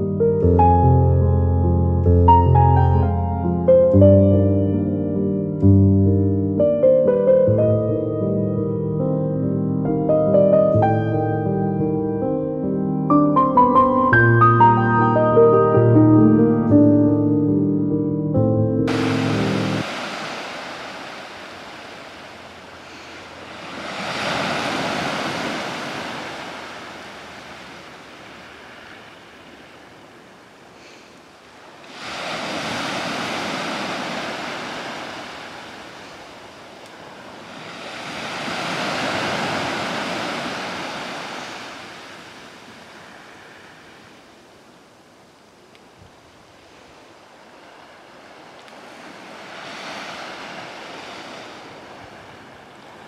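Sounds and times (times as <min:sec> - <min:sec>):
ocean surf breaking on shore: 0:18.9 - 0:53.0.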